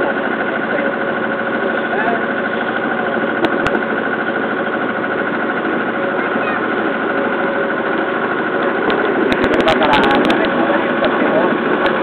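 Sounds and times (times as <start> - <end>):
boat engine running: 0.0 - 12.0
wind: 0.0 - 12.0.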